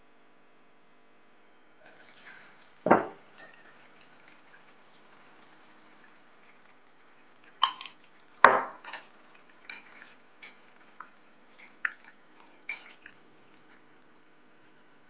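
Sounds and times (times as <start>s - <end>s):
chopsticks clinking on clay pot: 7.6s - 13.2s.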